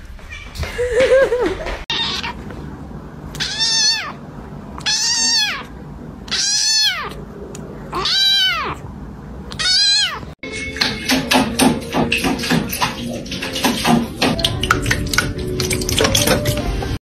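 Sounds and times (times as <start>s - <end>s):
kitten meowing: 1.9s - 2.4s, 3.3s - 4.2s, 4.8s - 5.7s, 6.3s - 7.2s, 7.9s - 8.8s, 9.5s - 10.3s.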